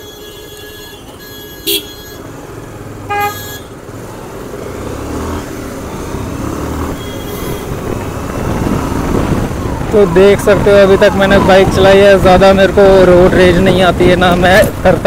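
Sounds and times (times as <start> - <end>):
vehicle horn toots: 0.0 - 2.3, 3.0 - 3.8, 7.0 - 7.8
motorcycle engine: 0.0 - 15.0
road noise: 0.0 - 15.0.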